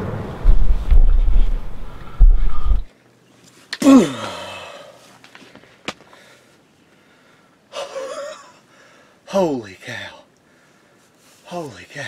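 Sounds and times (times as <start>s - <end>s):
breathy exclamation: 3.8s - 5.0s
man's excited gasping cry: 3.8s - 5.0s.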